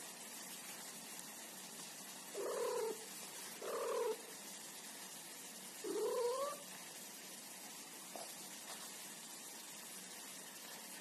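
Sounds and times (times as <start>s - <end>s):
cat yowling: 5.9s - 6.6s.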